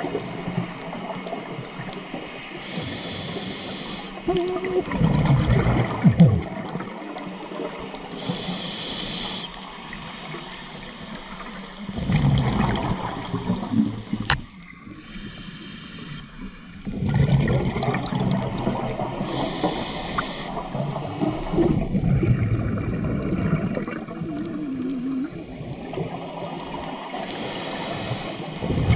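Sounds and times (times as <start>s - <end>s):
exhaled bubbles gurgling: 0.0s - 28.9s
regulator hiss on inhale: 2.4s - 4.3s, 8.0s - 9.7s, 14.9s - 16.7s, 19.2s - 20.8s, 27.1s - 28.6s.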